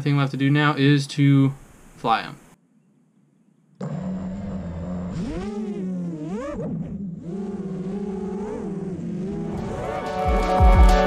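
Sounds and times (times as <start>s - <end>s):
drone motors buzzing whine: 3.8s - 10.2s
music: 9.5s - 11.0s.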